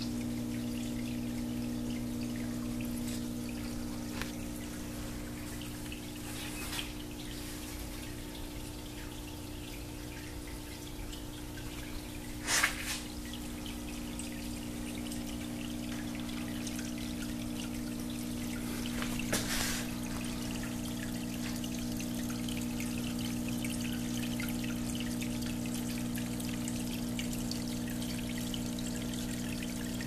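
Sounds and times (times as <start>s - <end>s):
water pouring down glass: 9.9s - 30.0s.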